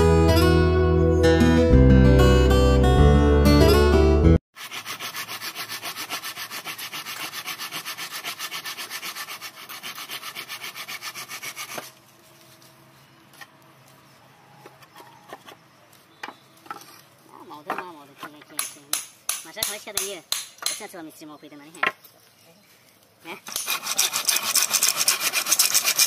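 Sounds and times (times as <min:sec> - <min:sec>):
rubbing on wooden plank: 0:04.6 - 0:12.7, 0:23.5 - 0:26.0.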